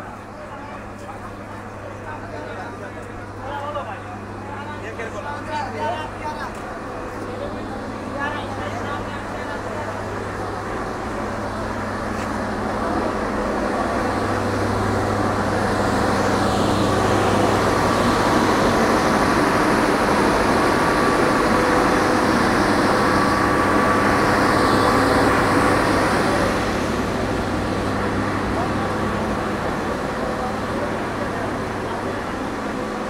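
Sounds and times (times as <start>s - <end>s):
train diesel engine humming: 0.0s - 33.0s.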